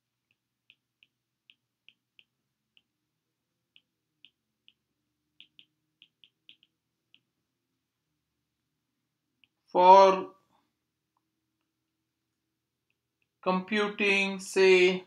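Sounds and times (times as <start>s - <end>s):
stylus tapping on glass screen: 0.2s - 3.0s, 3.7s - 7.3s.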